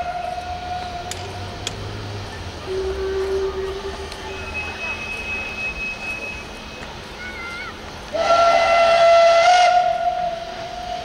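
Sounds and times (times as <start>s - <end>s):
steam locomotive whistle: 0.0s - 1.3s, 2.6s - 6.8s, 8.1s - 11.0s
steam hissing: 0.0s - 11.0s.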